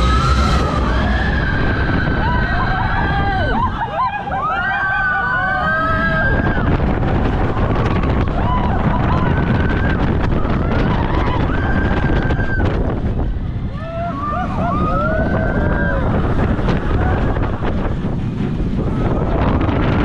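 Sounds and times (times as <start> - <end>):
riders screaming: 0.0 - 6.8, 13.7 - 18.0
roller coaster rumbling on track: 0.0 - 20.0
wind rushing over microphone: 0.0 - 20.0.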